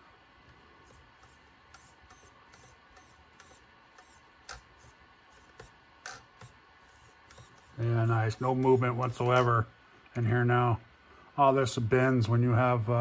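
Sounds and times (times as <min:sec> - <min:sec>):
sharp clicks: 0:00.5 - 0:09.6
steering servo whirring: 0:00.5 - 0:09.7.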